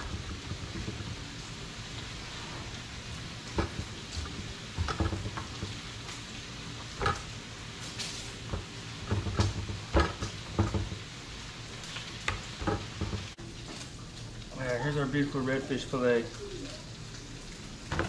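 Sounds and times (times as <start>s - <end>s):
bacon sizzling on griddle: 0.0s - 18.0s.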